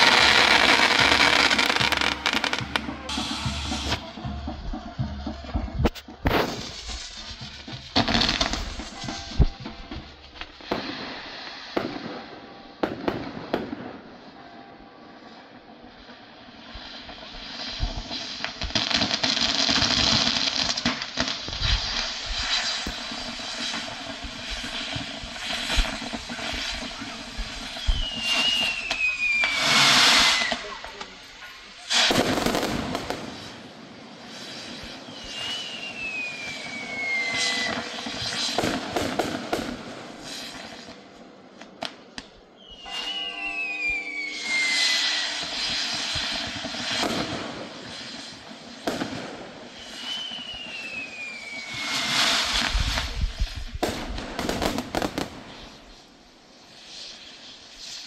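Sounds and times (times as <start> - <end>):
fireworks sharp pops: 0.0 - 14.2, 16.7 - 43.4, 44.5 - 58.0
fireworks hissing and crackling: 0.0 - 58.0
whistles gliding down in pitch: 27.6 - 30.7, 35.0 - 38.5, 42.6 - 46.1, 49.7 - 52.1.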